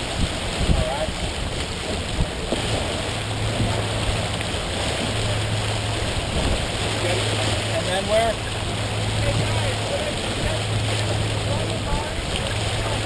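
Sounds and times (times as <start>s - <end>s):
water rushing along a hull: 0.0s - 13.0s
wind buffeting microphone: 0.0s - 13.0s.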